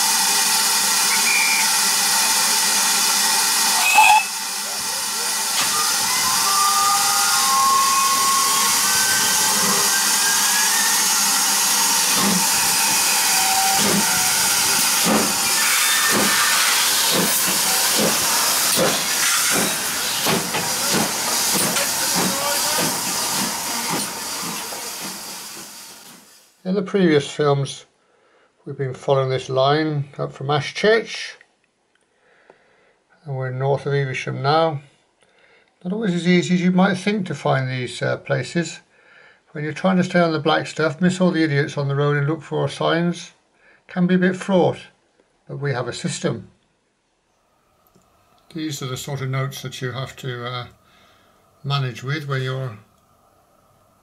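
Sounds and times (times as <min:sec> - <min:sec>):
steam hissing: 0:00.0 - 0:26.6, 0:48.5 - 0:53.0
steam locomotive exhaust chuffs: 0:00.0 - 0:26.6, 0:48.5 - 0:53.0.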